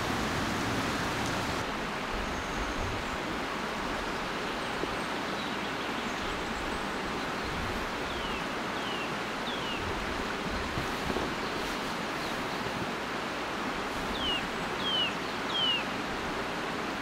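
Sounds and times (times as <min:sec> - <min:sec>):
river water rushing: 0:00.0 - 0:17.0
bird whistling: 0:14.2 - 0:15.8.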